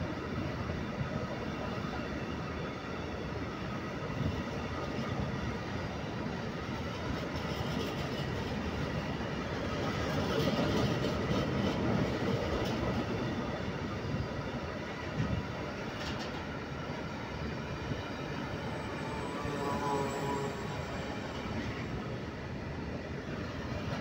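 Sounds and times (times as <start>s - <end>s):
train wheels rumbling on rails: 0.0s - 24.0s.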